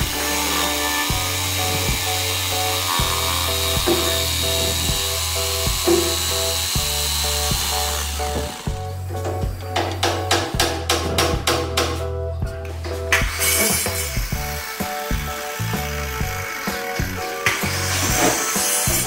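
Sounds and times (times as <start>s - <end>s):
woodworking power tool whine: 0.0s - 9.1s, 13.3s - 19.0s
background music with bass line: 0.0s - 19.0s.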